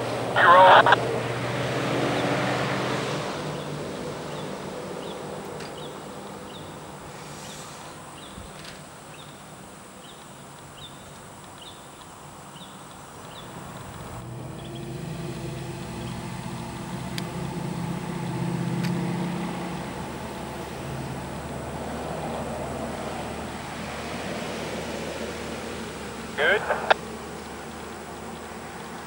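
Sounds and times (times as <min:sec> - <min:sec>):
diesel locomotive engine: 0:12.1 - 0:29.0.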